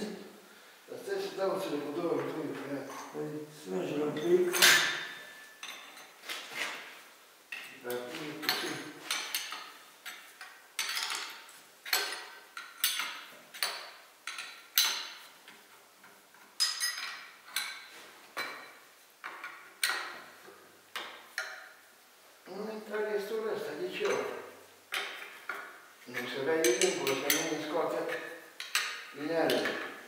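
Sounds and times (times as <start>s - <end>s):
hand tools clinking on metal: 4.1s - 6.2s, 7.5s - 15.2s, 16.4s - 20.2s, 24.0s - 30.0s.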